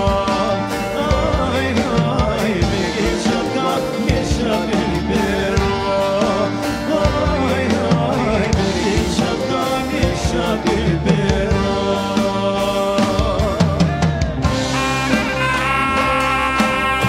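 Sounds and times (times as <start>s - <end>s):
drum kit: 0.0s - 17.0s
men singing: 0.0s - 17.0s
wind instruments long notes: 0.0s - 17.0s.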